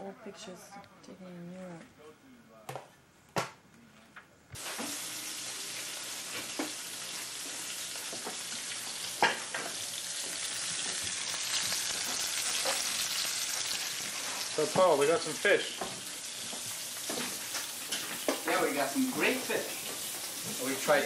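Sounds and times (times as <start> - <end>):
fish sizzling in oil: 4.6 - 21.0.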